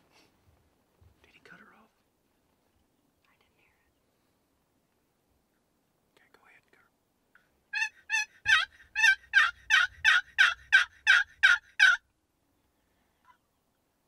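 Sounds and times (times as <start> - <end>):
turkey call hen yelps: 7.7 - 12.0.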